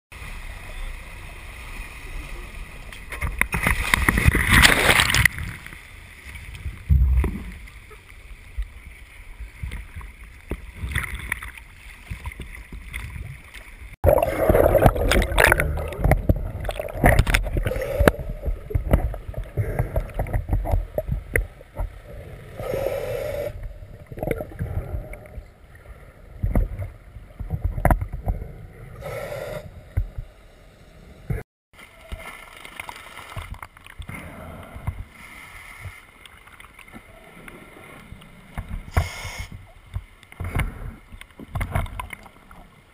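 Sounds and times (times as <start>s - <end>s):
sea water sloshing: 1.2s - 22.7s
exhaled bubbles rushing: 14.0s - 21.4s
diver breathing through regulator: 17.5s - 18.7s, 22.3s - 23.7s, 28.9s - 29.8s, 38.9s - 39.6s.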